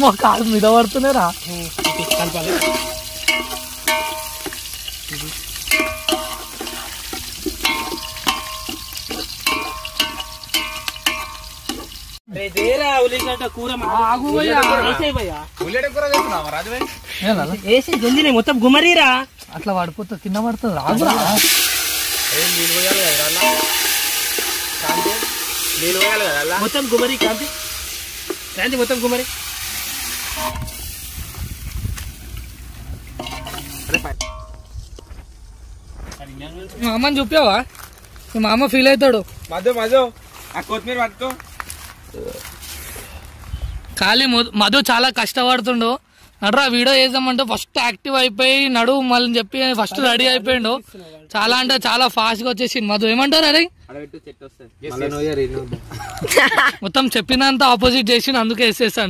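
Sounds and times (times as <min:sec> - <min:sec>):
steel ladle knocking and scraping pot: 0:01.7 - 0:05.0, 0:05.6 - 0:13.9, 0:15.6 - 0:17.1, 0:20.8 - 0:28.6, 0:30.2 - 0:30.9, 0:33.1 - 0:35.0.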